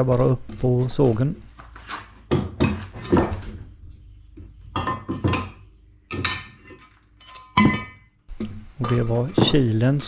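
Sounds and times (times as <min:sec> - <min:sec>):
metal clanks and knocks: 0:02.3 - 0:03.6, 0:04.7 - 0:09.8.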